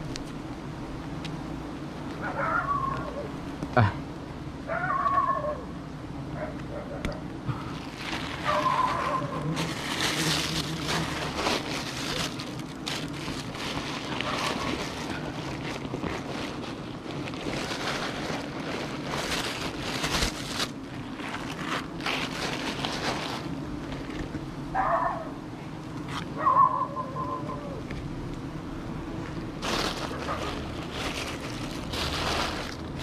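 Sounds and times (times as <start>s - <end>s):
swarm of honeybees humming: 0.0s - 33.0s
gloved hands scraping tree bark: 7.6s - 18.2s.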